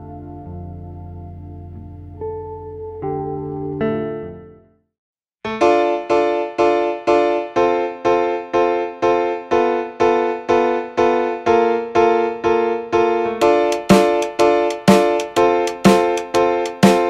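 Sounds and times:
repeated chord music: 0:05.5 - 0:17.0.

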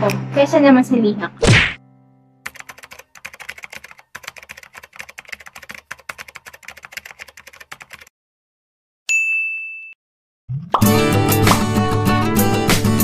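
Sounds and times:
key clicks typing: 0:02.5 - 0:08.1
high ding: 0:09.1 - 0:10.0.

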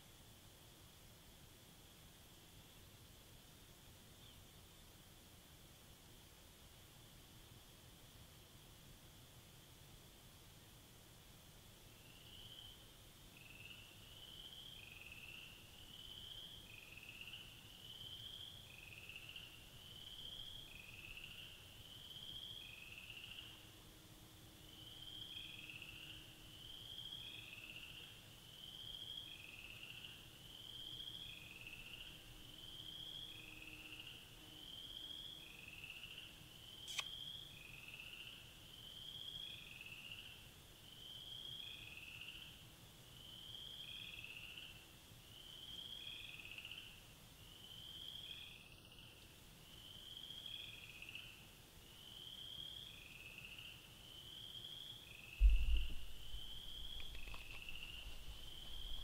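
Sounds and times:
sharp click: 0:36.9 - 0:37.2
small animal peeping calls: 0:55.5 - 0:59.0.

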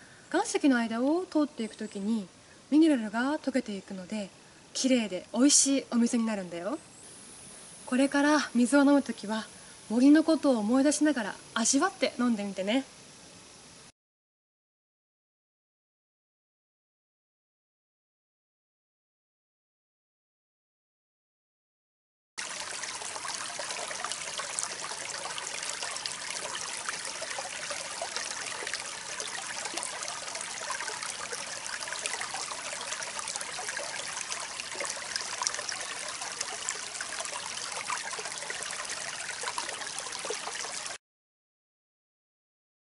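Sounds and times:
stream running over rocks: 0:22.4 - 0:41.0.

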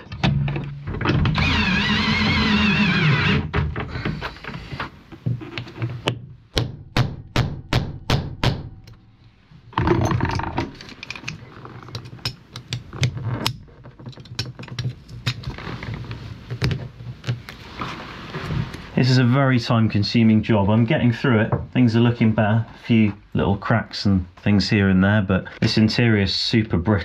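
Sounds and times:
rasping burst: 0:01.3 - 0:03.5.

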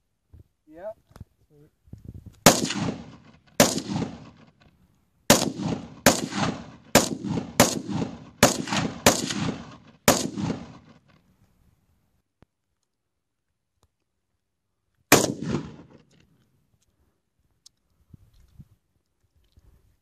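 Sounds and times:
rifle shots echoing: 0:02.4 - 0:04.6, 0:05.3 - 0:11.2, 0:15.1 - 0:16.2.

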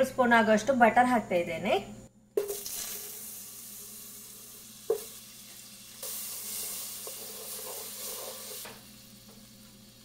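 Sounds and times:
butter sizzling in a pot: 0:02.4 - 0:10.0
wooden spoon stirring: 0:07.0 - 0:08.6.

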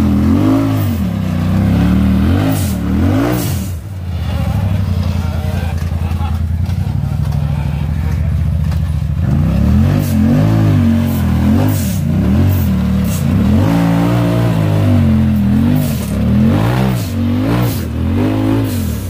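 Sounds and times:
buggy engine revving: 0:00.0 - 0:19.0.

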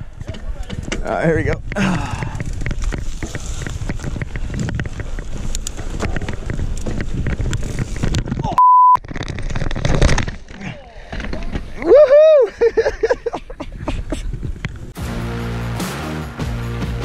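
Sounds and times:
wind buffeting microphone: 0:00.0 - 0:08.6
bike rattling and clicking: 0:00.0 - 0:11.9, 0:12.7 - 0:15.0
mountain bike rolling on dirt: 0:00.0 - 0:12.0
censor bleep: 0:08.6 - 0:09.0.

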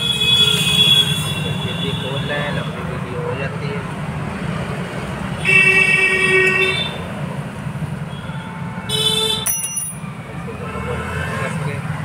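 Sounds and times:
vehicle horn: 0:00.0 - 0:02.2, 0:05.4 - 0:07.0, 0:08.1 - 0:09.5.

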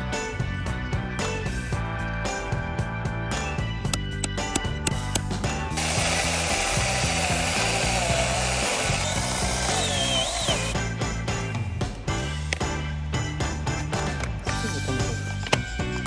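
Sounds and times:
background music with steady beat: 0:00.0 - 0:16.0
mini chainsaw cutting wood: 0:05.8 - 0:10.8.

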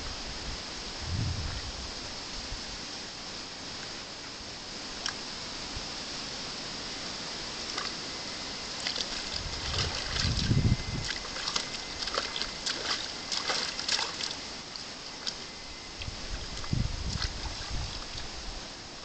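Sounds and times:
water splashing in basin: 0:08.8 - 0:15.4, 0:16.0 - 0:18.3.

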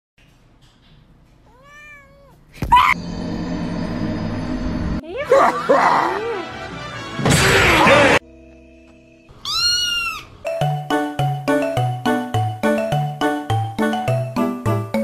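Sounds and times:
cat meow: 0:01.5 - 0:02.9, 0:09.4 - 0:10.3
wavering cries: 0:09.4 - 0:10.4.

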